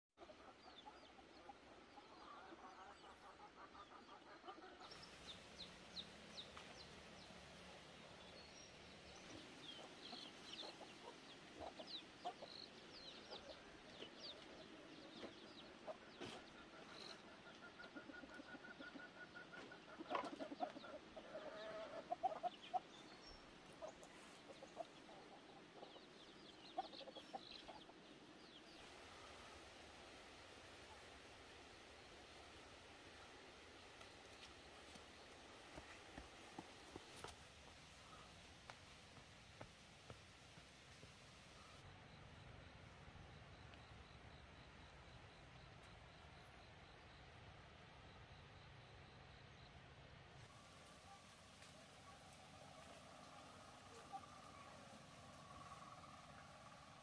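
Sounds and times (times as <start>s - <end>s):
chickens clucking: 0.2s - 7.7s, 9.1s - 28.9s.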